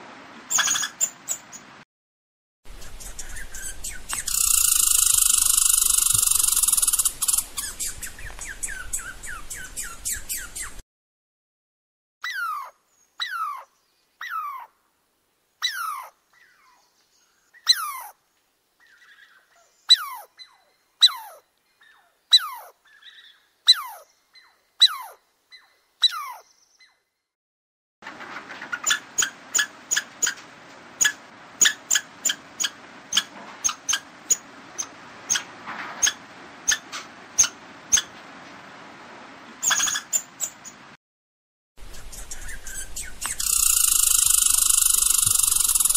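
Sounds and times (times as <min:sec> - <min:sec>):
background hiss: 0:02.7 - 0:10.8
rapid sharp chirps: 0:03.0 - 0:08.9, 0:42.0 - 0:45.9
high animal calls sliding down: 0:03.6 - 0:09.0.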